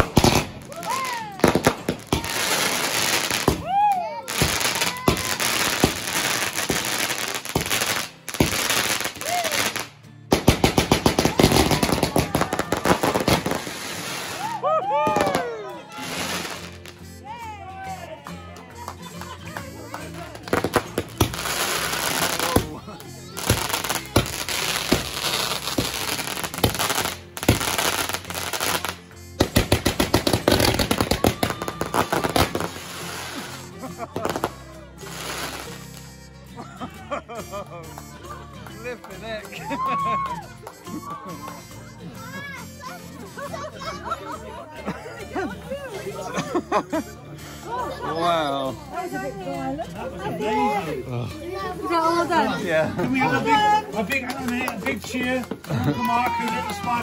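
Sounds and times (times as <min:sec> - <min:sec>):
firework hissing and crackling: 0:00.0 - 0:15.4, 0:16.0 - 0:17.0, 0:20.5 - 0:36.0.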